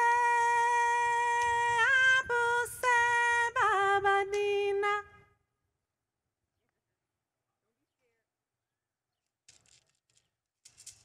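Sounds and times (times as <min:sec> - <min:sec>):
woman singing a cappella: 0:00.0 - 0:05.4.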